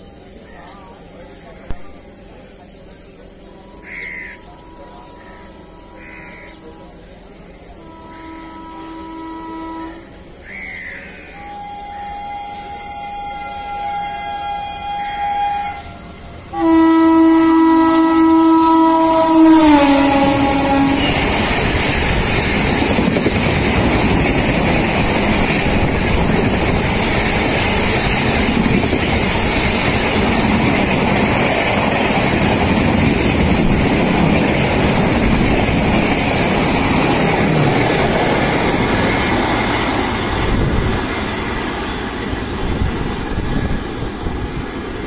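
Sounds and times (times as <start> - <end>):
train wheels rumbling on rail: 0.0 - 45.0.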